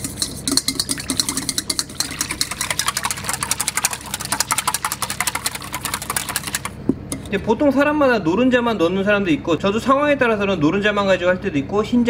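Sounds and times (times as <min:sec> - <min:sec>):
whisk clicking against metal bowl: 0:00.0 - 0:07.3.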